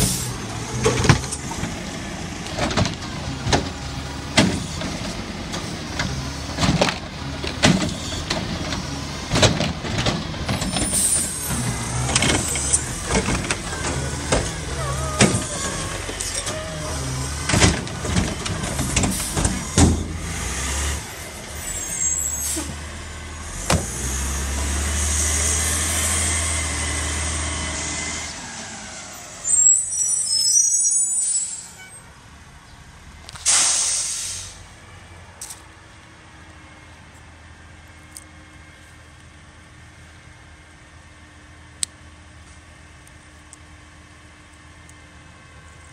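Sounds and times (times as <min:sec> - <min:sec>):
trash carts banging on metal hopper: 0:00.0 - 0:20.3
truck engine running: 0:00.0 - 0:29.6
air brakes hissing: 0:10.5 - 0:17.5, 0:18.9 - 0:20.2, 0:21.5 - 0:22.8, 0:28.6 - 0:32.0, 0:33.4 - 0:34.7.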